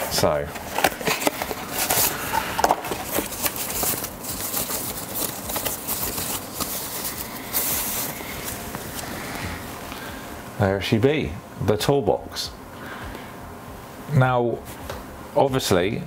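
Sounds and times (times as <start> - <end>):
plastic wrap rustling: 0.0 - 10.0.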